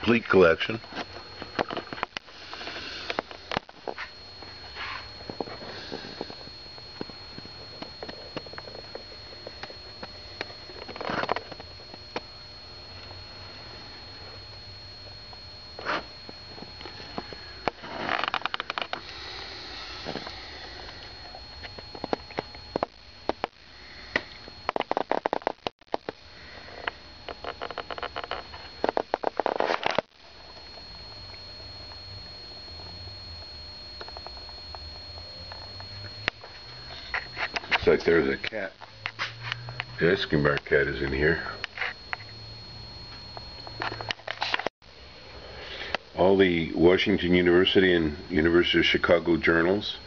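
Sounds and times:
faint high whine: 0.0s - 50.0s
person breathing and sniffing: 5.6s - 6.4s, 19.0s - 21.2s.

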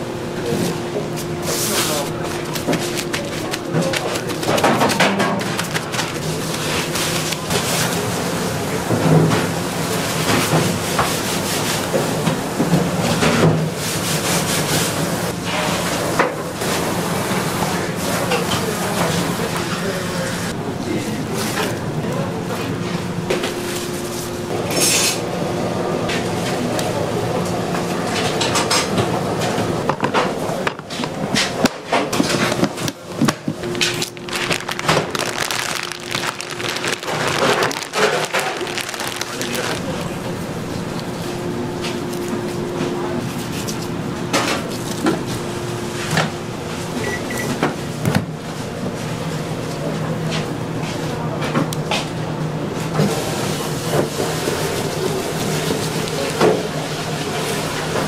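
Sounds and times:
kitchen background noise: 0.3s - 58.0s
rubbing and scraping fish: 33.7s - 40.0s.

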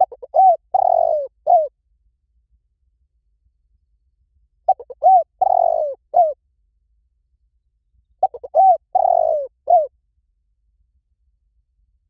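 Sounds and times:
dove cooing: 0.0s - 1.7s, 4.7s - 6.4s, 8.2s - 9.9s.

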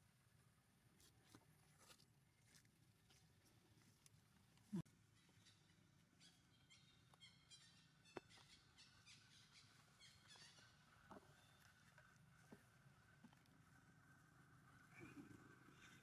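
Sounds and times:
faint high-pitched chirping: 5.1s - 11.8s.

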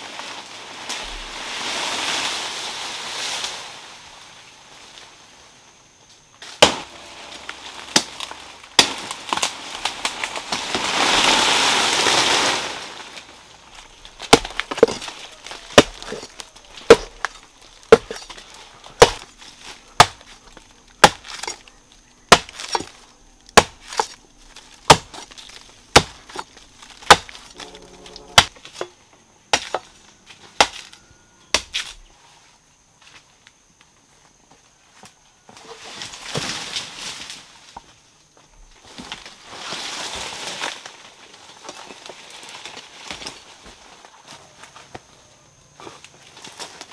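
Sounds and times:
palm fronds rustling: 0.0s - 46.9s
machete chopping palm trunk: 6.5s - 7.0s, 8.8s - 9.5s, 14.2s - 19.3s, 20.0s - 20.4s, 21.0s - 21.6s, 22.3s - 28.9s, 29.5s - 29.9s, 30.6s - 32.0s.

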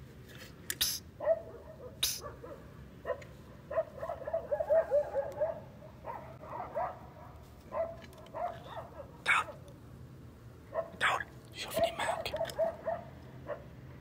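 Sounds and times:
dog yapping and barking: 1.2s - 9.7s, 10.7s - 11.1s, 11.7s - 13.8s.

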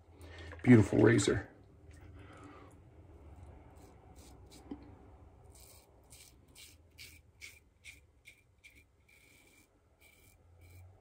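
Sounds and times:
razor scraping stubble: 3.7s - 11.0s.

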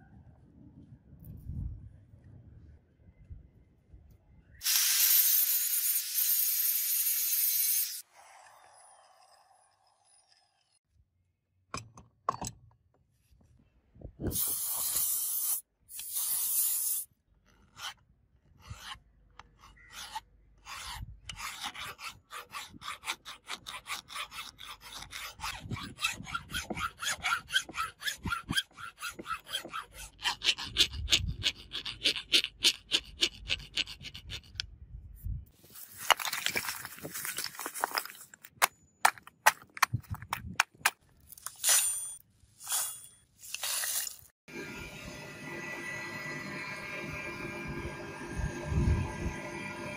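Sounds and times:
file rasping on metal: 18.6s - 34.6s.

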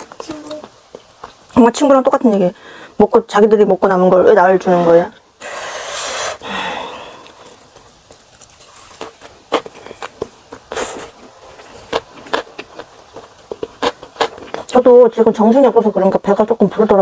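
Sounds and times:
breathy hiss: 2.5s - 3.0s, 4.6s - 7.8s
close chewing with mouth clicks: 7.1s - 14.9s.

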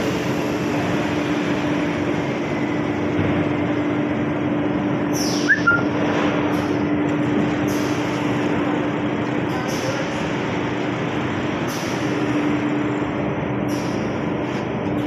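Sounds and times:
mill machinery running: 0.0s - 15.0s
brief squeak: 5.2s - 5.9s.

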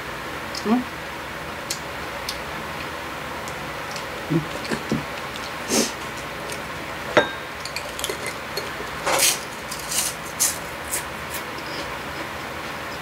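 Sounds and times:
wet chewing noises: 3.5s - 6.8s, 7.6s - 13.0s
chopstick clinking on a dish: 7.2s - 8.7s.

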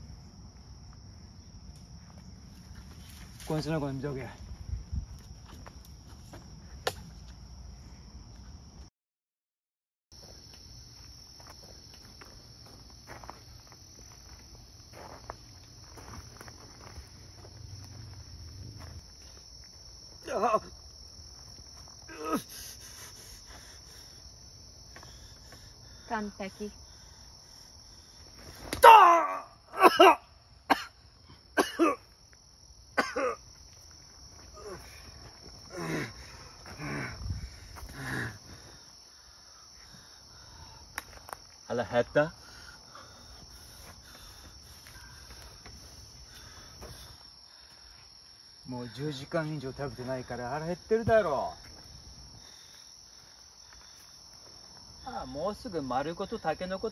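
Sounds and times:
insect chorus chirring: 0.0s - 8.9s, 10.2s - 56.9s
person coughing hoarsely: 29.7s - 31.0s, 31.6s - 32.1s, 33.0s - 33.5s.

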